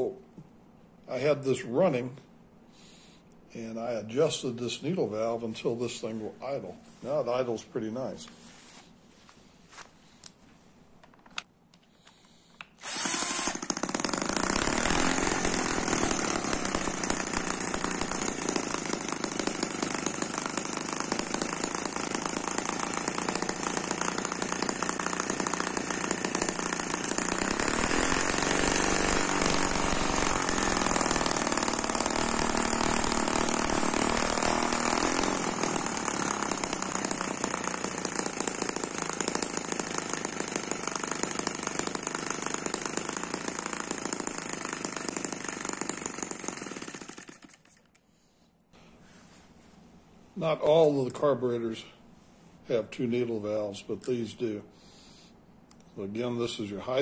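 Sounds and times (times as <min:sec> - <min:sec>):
model engine idling: 0:12.9 - 0:47.4.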